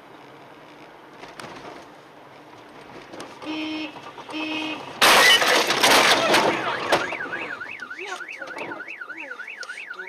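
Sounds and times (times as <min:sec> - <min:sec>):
car horn honking: 0:03.4 - 0:09.3
car alarm warbling: 0:03.5 - 0:10.0.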